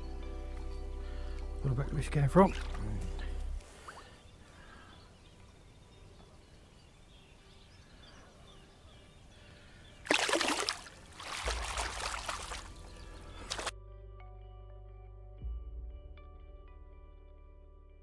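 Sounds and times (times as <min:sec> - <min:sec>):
faint water trickle: 0:09.4 - 0:13.7
fish splashing in shallow water: 0:10.0 - 0:13.7.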